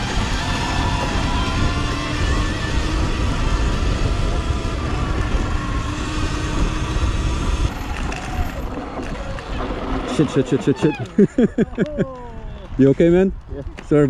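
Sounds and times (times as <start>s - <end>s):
electric motor whine: 0.0s - 11.2s
wind and road rumble on microphone: 0.0s - 14.0s.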